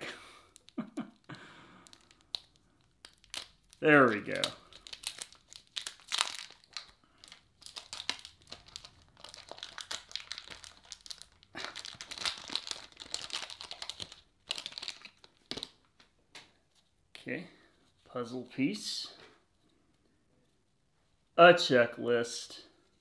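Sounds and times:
foil wrapper crinkling and tearing: 0.6s - 15.8s.

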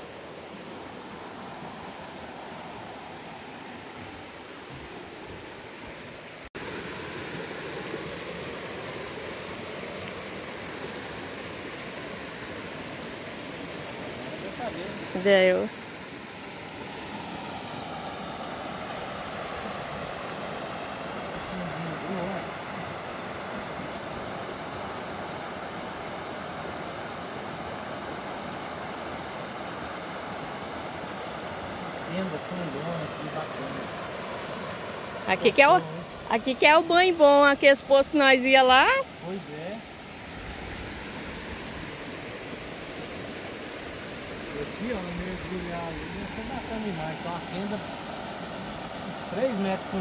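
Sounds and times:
flowing river water: 0.0s - 50.0s.

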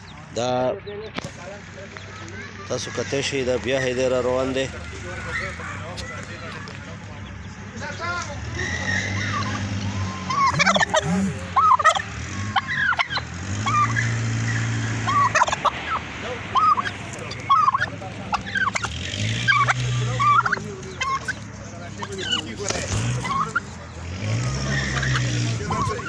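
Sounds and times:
turkey gobbling: 8.5s - 26.0s.

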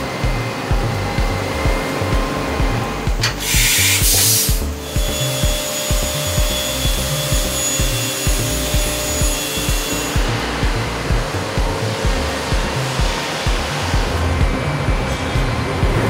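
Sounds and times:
music with steady beat: 0.0s - 16.0s
loud hiss: 3.2s - 14.4s.

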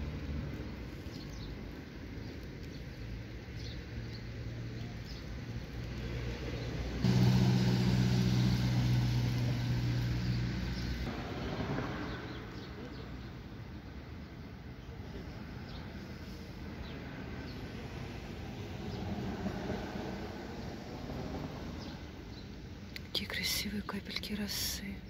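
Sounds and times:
vehicle engine running: 7.0s - 11.1s.

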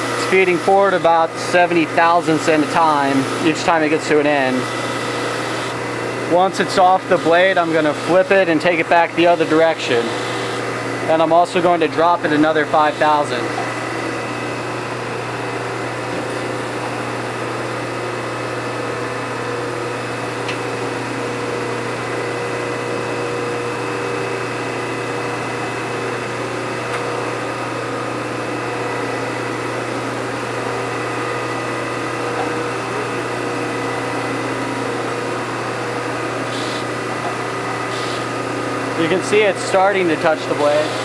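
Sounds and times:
belt grinder humming and whining: 0.0s - 41.0s.

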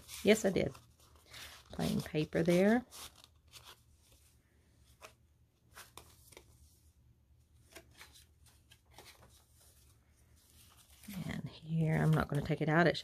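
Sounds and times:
paper rustling: 0.0s - 6.8s, 7.6s - 12.6s
soft taps of paper pages: 4.9s - 6.6s.

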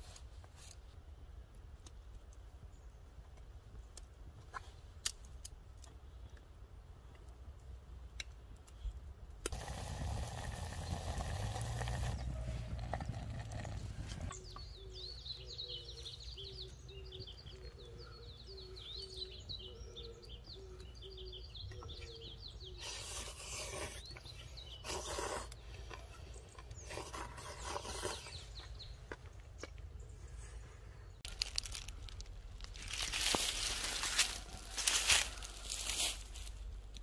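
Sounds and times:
birds singing: 10.4s - 32.0s
crunching and rustling: 31.2s - 37.0s.

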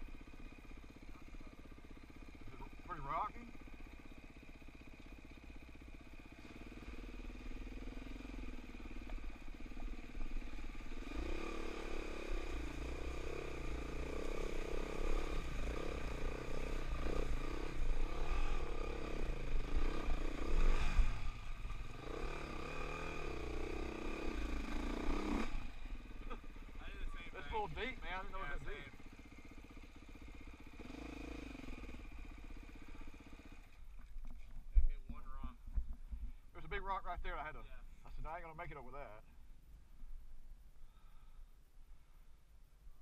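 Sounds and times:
dirt bike engine revving: 0.0s - 33.9s.

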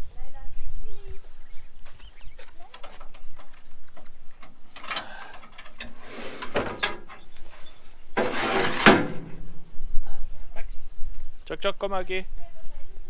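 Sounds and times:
rustling: 1.8s - 9.7s
sharp clicks: 2.4s - 7.2s
tailgate scraping rush: 2.6s - 9.6s.

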